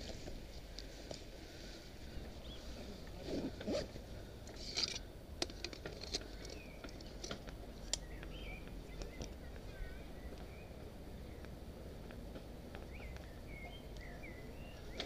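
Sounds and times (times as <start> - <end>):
bird chirps: 7.8 - 11.6, 12.7 - 15.0.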